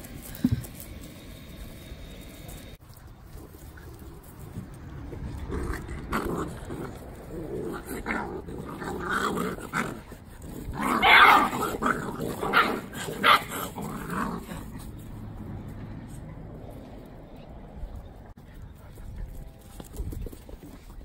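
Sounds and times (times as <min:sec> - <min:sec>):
puppies growling and barking: 0:03.3 - 0:16.2.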